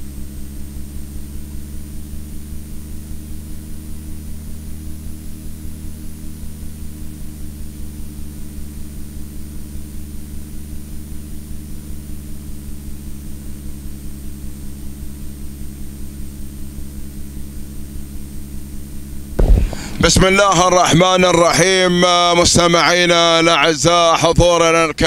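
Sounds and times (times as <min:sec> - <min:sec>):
low throbbing mechanical hum: 0:00.0 - 0:22.8
faint high whine: 0:19.4 - 0:23.0.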